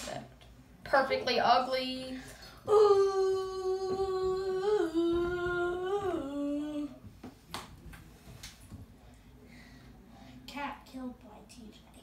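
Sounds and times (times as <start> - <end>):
high voice humming: 2.7 - 7.0.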